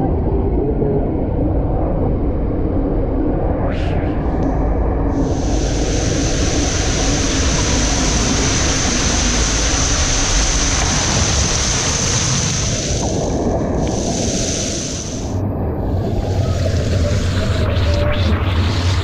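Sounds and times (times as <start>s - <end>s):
water rushing in slide tube: 5.1s - 19.0s.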